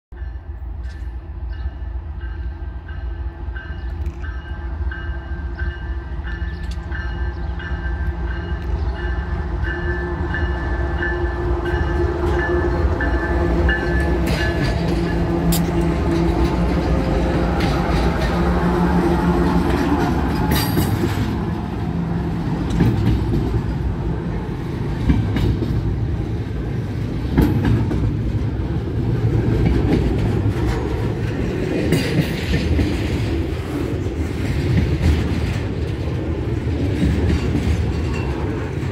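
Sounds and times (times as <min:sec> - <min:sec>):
locomotive bell ringing: 0:00.1 - 0:22.4, 0:37.4 - 0:38.9
train wheels clicking over rails: 0:11.7 - 0:38.9.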